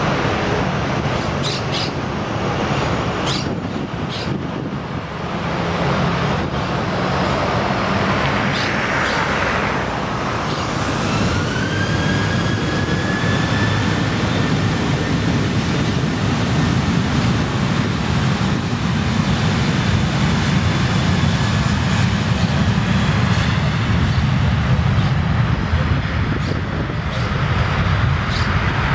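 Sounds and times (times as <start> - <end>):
jet engine fan whine: 0.0 - 28.9.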